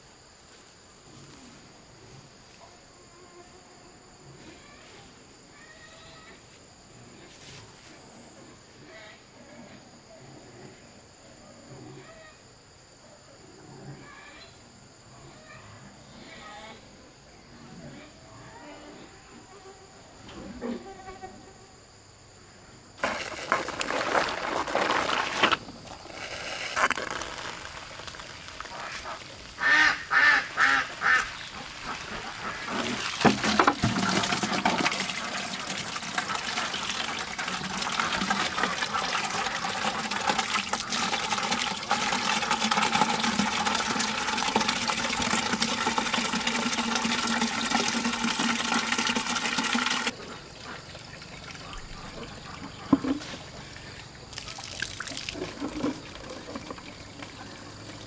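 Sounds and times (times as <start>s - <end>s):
water running and splashing: 23.0s - 58.0s.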